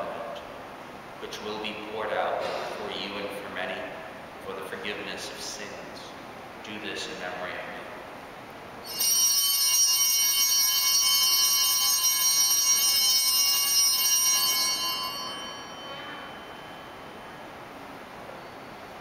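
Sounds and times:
high bells ringing: 8.8 - 19.0.

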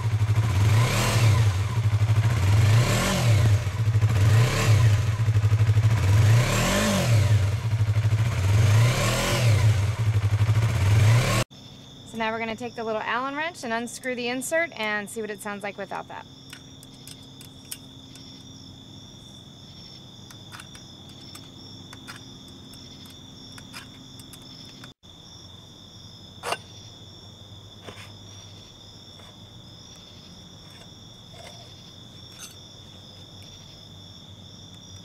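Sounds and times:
crickets trilling: 11.5 - 35.0
wrench clicks: 16.5 - 18.6, 20.2 - 25.0.

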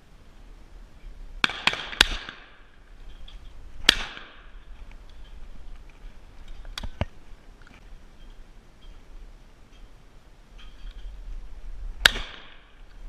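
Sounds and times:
shotgun shots with echo: 1.4 - 2.6, 3.8 - 4.5, 12.0 - 12.7
sharp cracks: 1.4 - 7.8, 12.0 - 13.0.

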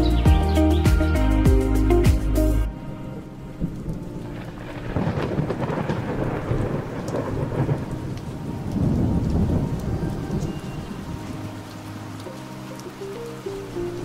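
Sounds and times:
steady rain: 0.0 - 14.0
rolling thunder: 3.5 - 11.4.

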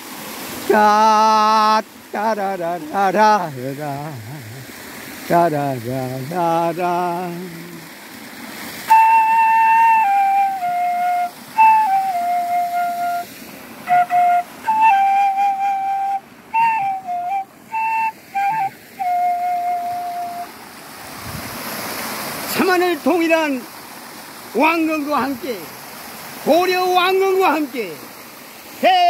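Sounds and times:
stream rushing: 0.0 - 29.0
bamboo flute melody: 8.8 - 20.6.

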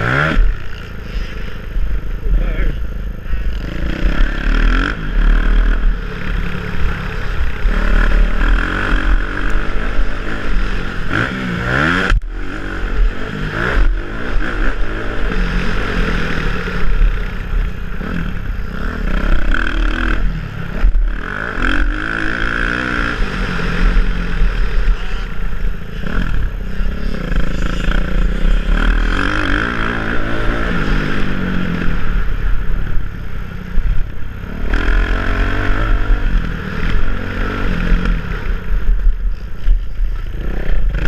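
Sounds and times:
motocross engine revving: 0.0 - 1.3, 2.1 - 33.2, 34.4 - 39.4, 40.0 - 41.0.

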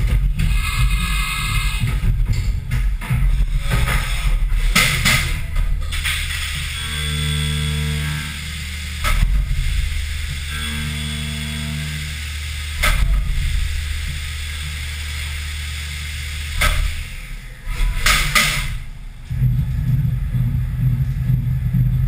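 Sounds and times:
milling machine hum: 0.0 - 22.0
sudden loud noise bursts: 0.0 - 22.0
coolant spray hissing: 5.8 - 18.9
pitched cutting tone: 6.4 - 9.2, 9.8 - 13.2.

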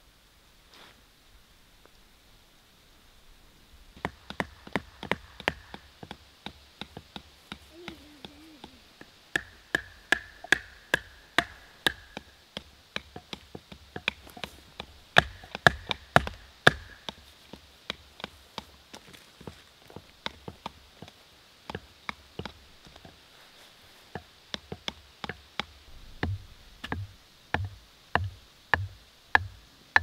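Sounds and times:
tent stakes being hammered: 4.0 - 18.8, 20.2 - 23.2, 24.1 - 30.0.

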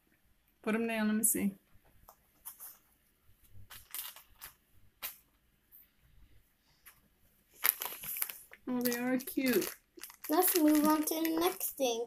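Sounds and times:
small plastic toys clicking: 7.7 - 11.8.

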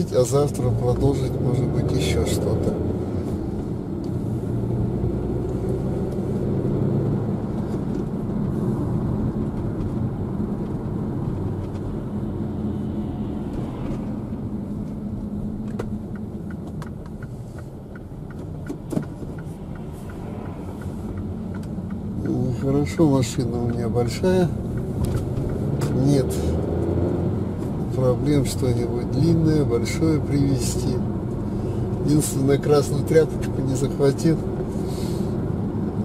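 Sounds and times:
car engine and road hum: 0.0 - 36.0
turn signal ticking: 14.3 - 36.0.

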